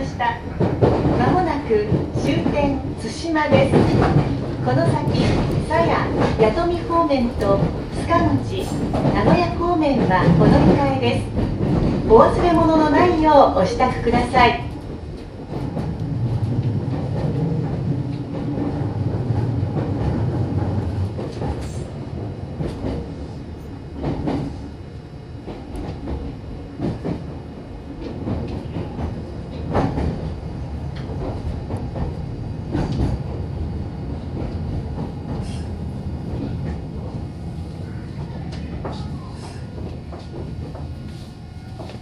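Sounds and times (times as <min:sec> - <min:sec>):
train wheels clacking on rail joints: 0:03.4 - 0:06.7, 0:07.3 - 0:13.1.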